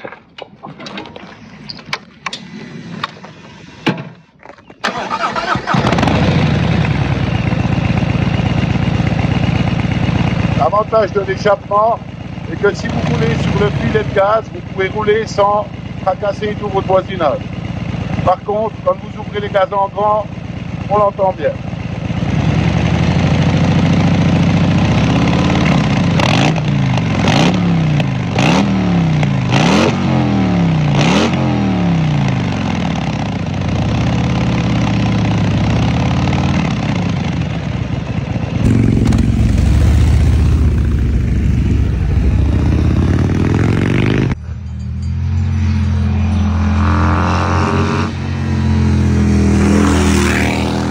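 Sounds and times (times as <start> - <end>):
engine pulling with rising revs: 4.8 - 8.1, 12.5 - 16.2, 22.2 - 33.2, 38.6 - 50.9
engine revving: 4.9 - 8.1, 12.5 - 15.4, 22.2 - 33.0, 38.6 - 44.5, 45.2 - 50.9
motorcycle engine idling: 6.1 - 28.4, 31.9 - 45.5.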